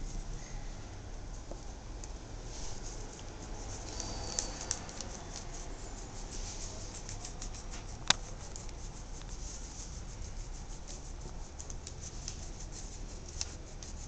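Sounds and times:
low steady hum: 0.0 - 14.0
pen scratching on paper: 2.8 - 14.0.

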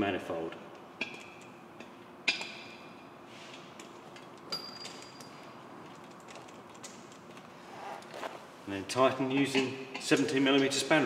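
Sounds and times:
ringing metal clink: 4.5 - 5.5.

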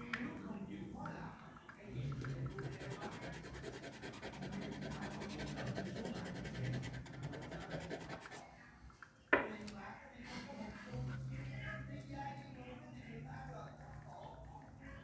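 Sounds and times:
pen scratching on paper: 2.3 - 8.4.

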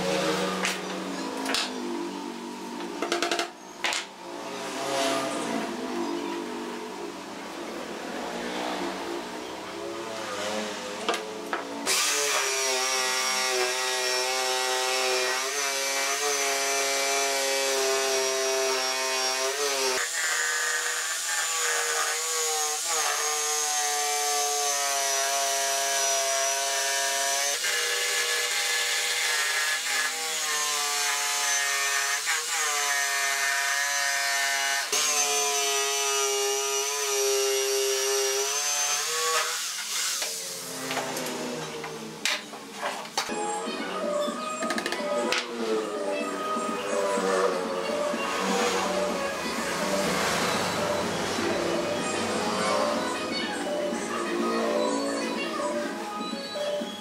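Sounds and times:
jigsaw cutting wood: 11.8 - 41.6.

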